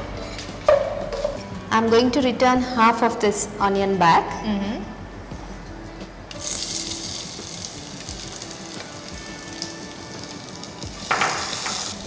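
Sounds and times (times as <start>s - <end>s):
onions sizzling in hot fat: 6.3s - 12.0s.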